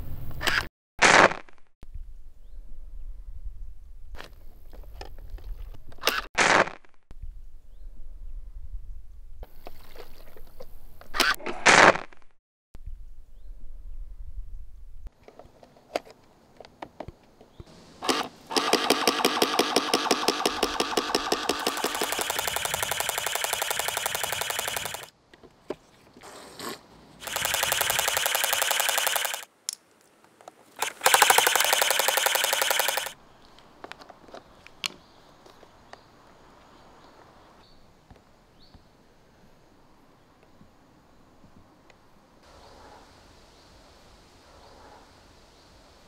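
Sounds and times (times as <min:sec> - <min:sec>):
water gun pump rattling: 0:18.0 - 0:25.1, 0:27.2 - 0:29.5, 0:30.8 - 0:33.2.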